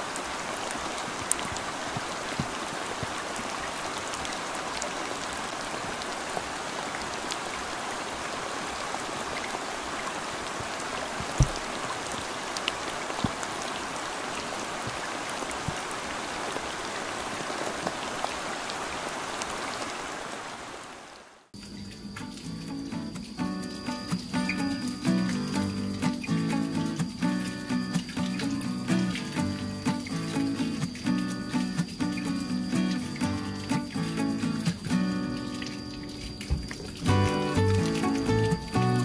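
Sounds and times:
rain falling on pond water: 0.0s - 39.0s.

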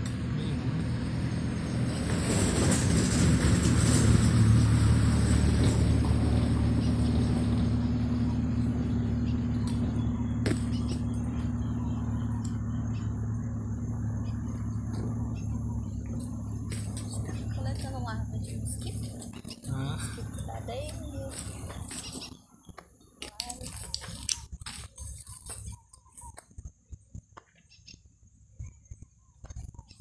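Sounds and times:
vehicle engine running: 0.0s - 30.0s.

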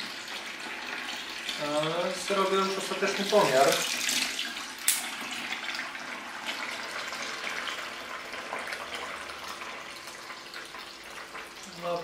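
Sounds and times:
liquid pouring into liquid: 0.0s - 12.0s.

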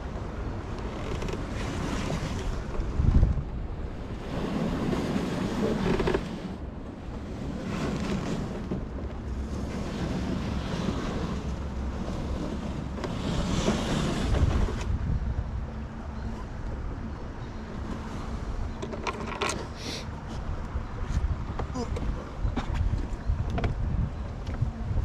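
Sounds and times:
wind buffeting microphone: 0.0s - 19.2s, 20.2s - 25.0s.

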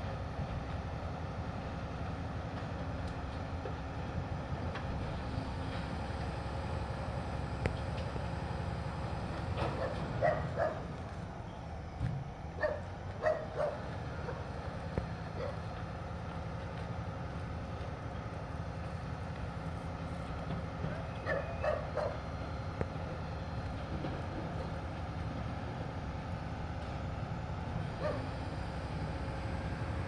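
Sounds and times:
truck engine idling: 0.0s - 30.0s
dog barking: 9.7s - 10.9s, 12.6s - 14.4s, 15.4s - 15.6s, 21.2s - 22.2s, 28.0s - 28.3s.

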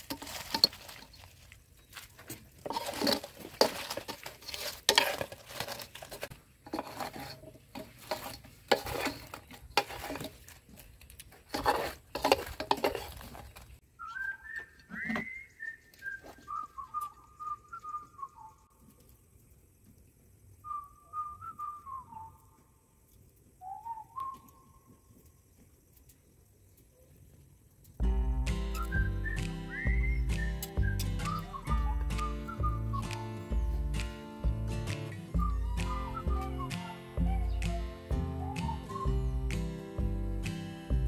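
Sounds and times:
spatula scraping a wok: 0.0s - 1.2s, 2.6s - 10.6s, 11.4s - 13.8s
whistled notes stepping down: 13.9s - 18.7s, 20.6s - 22.6s, 23.6s - 24.9s, 28.0s - 40.7s.

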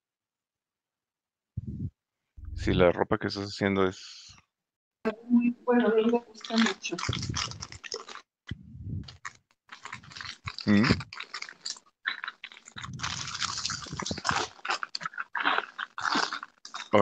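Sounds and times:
muffled voice: 1.6s - 3.9s.

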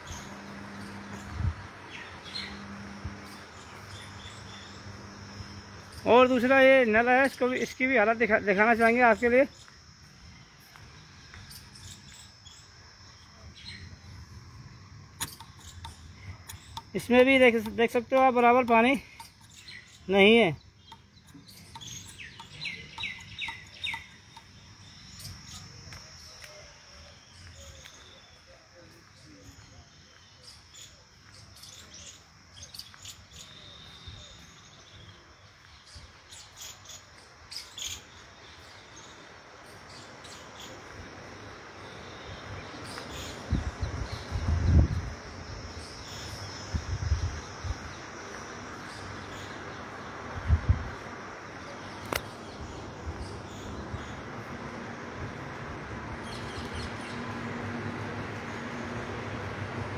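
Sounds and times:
low steady hum: 0.0s - 19.9s, 38.2s - 59.9s
outdoor background hush: 0.0s - 59.9s
small birds chirping: 0.0s - 59.9s
sharp click: 15.2s - 16.9s, 52.0s - 52.4s.

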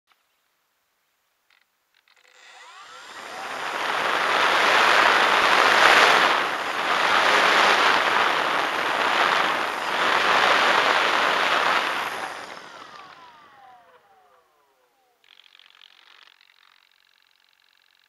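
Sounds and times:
model plane electric motor: 2.0s - 18.0s
propeller wind rushing over microphone: 2.4s - 14.4s.

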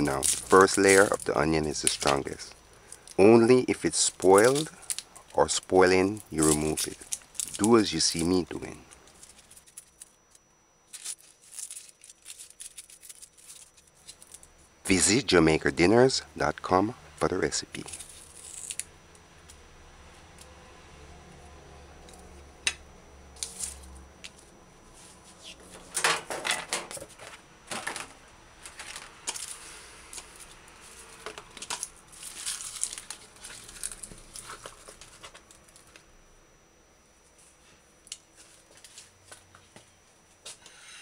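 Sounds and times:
onion skin crackling and tearing: 17.8s - 18.9s, 32.2s - 35.5s.

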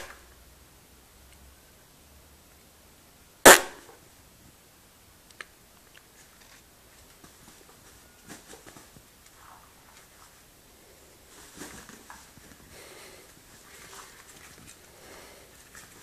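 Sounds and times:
puppies scuffling on wooden floor: 11.3s - 16.0s.

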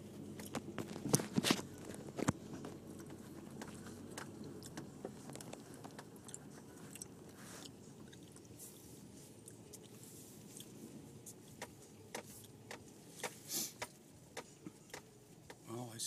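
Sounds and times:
small crackles and ticks: 0.3s - 8.8s.

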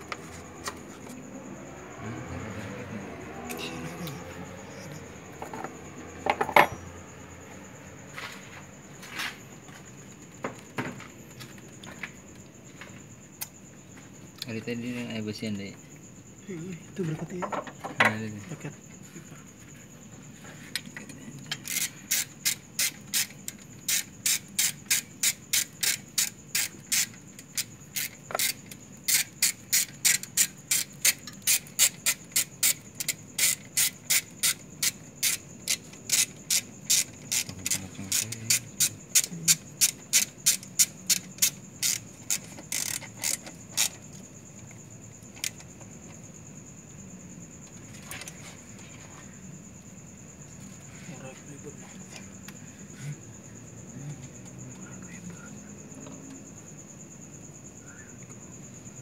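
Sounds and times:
ratchet wrench clicking: 21.6s - 44.0s.

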